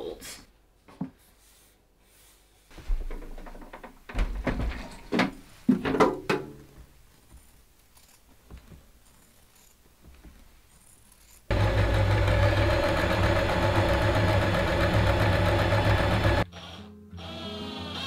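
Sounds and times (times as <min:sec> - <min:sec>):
faint handling sounds: 0:06.8 - 0:11.5.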